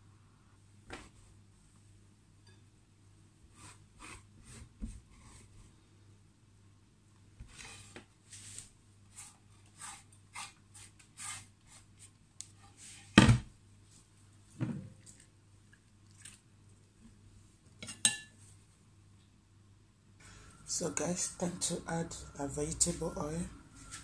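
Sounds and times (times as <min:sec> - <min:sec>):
scraping on cutting board: 0:07.5 - 0:11.8.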